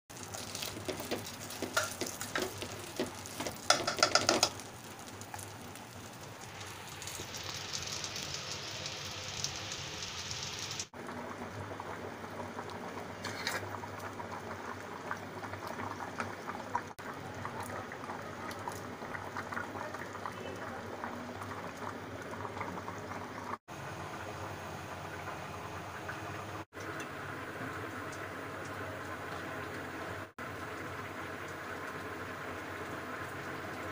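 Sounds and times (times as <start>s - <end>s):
water boiling in a pot: 0.1s - 33.9s
knocks and clatters: 0.8s - 4.6s.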